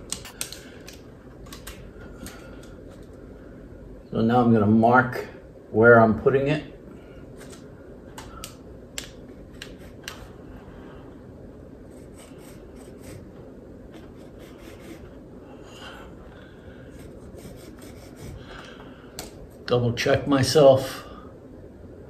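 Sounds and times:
pencil marking surface: 11.9s - 13.3s, 14.0s - 15.2s, 16.9s - 18.5s.

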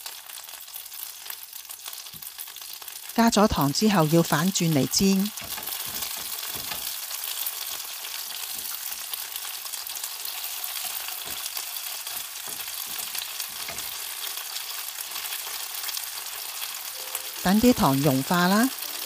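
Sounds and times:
chicken wings sizzling in a pan: 0.0s - 19.0s
tongs tapping: 5.3s - 6.9s, 12.1s - 14.0s.

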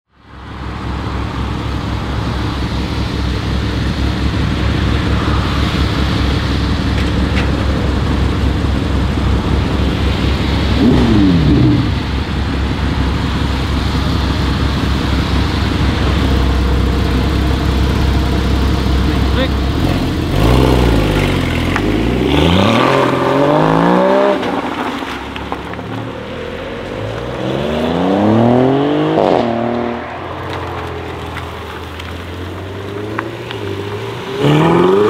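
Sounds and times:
car engine idling: 0.2s - 22.2s, 30.0s - 35.0s.

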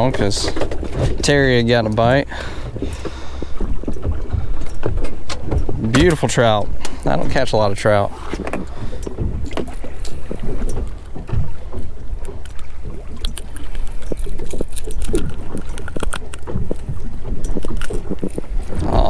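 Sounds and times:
wind rumbling on microphone: 0.0s - 19.0s
fishing hooks clicking and rattling: 13.2s - 16.8s.

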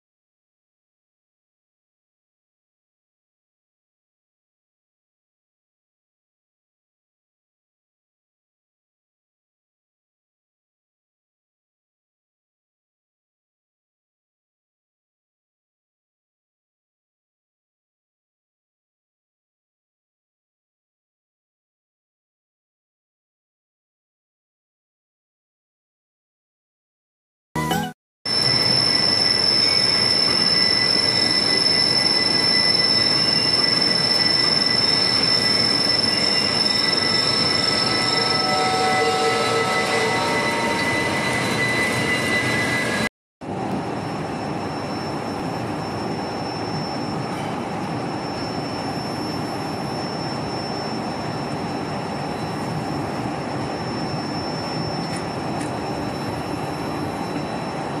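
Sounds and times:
high machine whine: 28.3s - 58.0s.

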